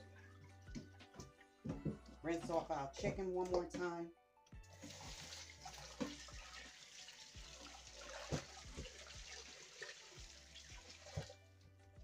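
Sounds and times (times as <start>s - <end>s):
faucet water splashing into bowl: 4.7s - 11.4s.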